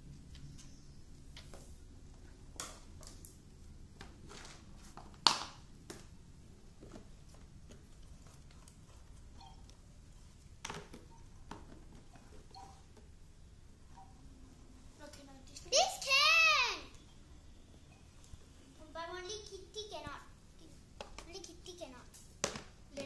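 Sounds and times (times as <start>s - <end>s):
plastic toys knocking and clattering: 10.6s - 13.1s, 21.0s - 21.5s, 22.4s - 23.0s.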